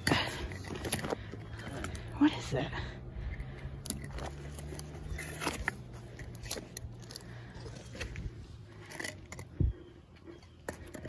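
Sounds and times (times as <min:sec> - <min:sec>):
low steady hum: 0:00.0 - 0:11.0
magnet scraping on concrete: 0:03.6 - 0:09.6.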